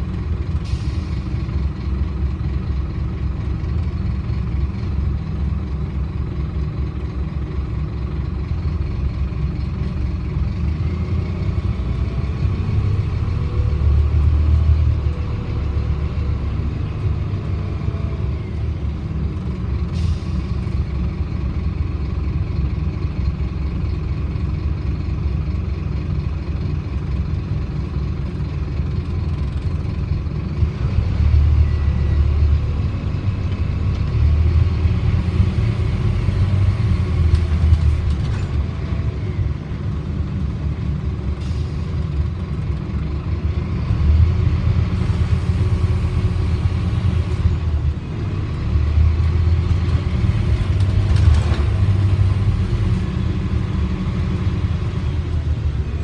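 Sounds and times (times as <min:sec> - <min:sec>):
bus diesel engine rumble: 0:00.0 - 0:56.0
faint rattle of bus body: 0:37.2 - 0:39.1.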